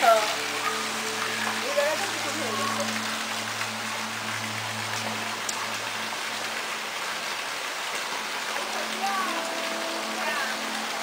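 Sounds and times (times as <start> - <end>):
steady rain on plants: 0.0 - 11.0.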